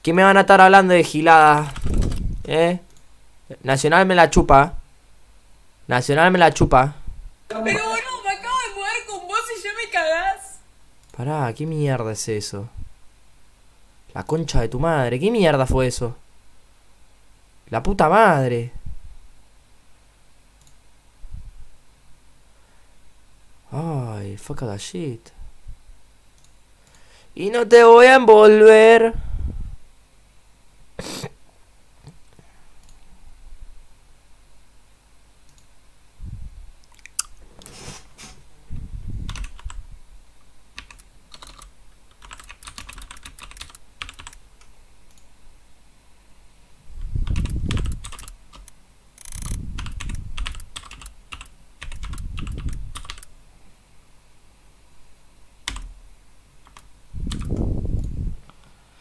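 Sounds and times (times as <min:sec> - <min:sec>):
typing on computer keyboard: 0:01.6 - 0:02.2, 0:39.3 - 0:39.8, 0:40.8 - 0:44.4, 0:47.2 - 0:53.3, 0:55.7 - 0:55.9, 0:56.6 - 0:57.6.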